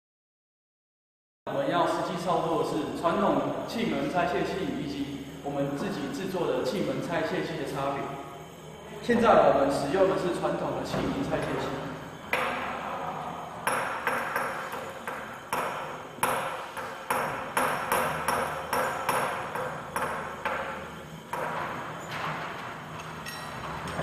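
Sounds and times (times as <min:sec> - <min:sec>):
metal-on-metal knocks: 0:13.6 - 0:22.6.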